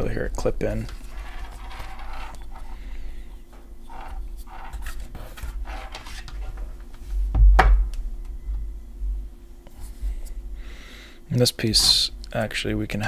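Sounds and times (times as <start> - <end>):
hands handling plastic parts: 0.8 - 2.8.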